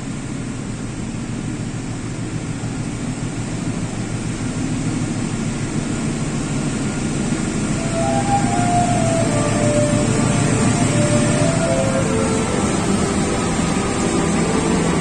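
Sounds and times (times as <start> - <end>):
diesel locomotive rumble: 0.0 - 15.0
short high tones: 7.8 - 15.0.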